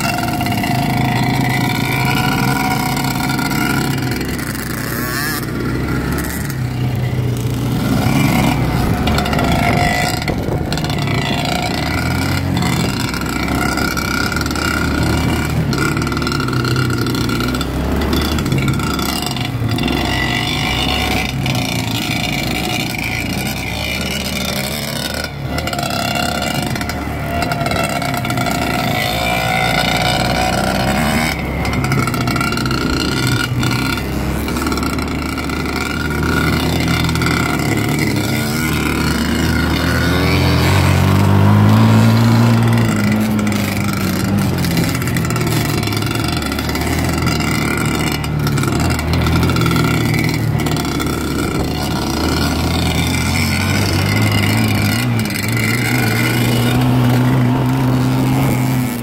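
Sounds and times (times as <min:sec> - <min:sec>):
dirt bike engines revving: 0:00.0 - 0:59.0.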